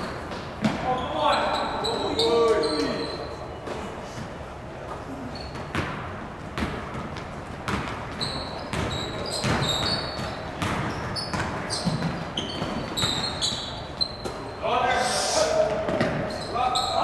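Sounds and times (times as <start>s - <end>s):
sneakers squeaking on court: 0.0s - 4.3s, 5.1s - 14.6s, 15.7s - 17.0s
basketball bouncing on gym floor: 5.4s - 14.4s, 15.7s - 16.4s.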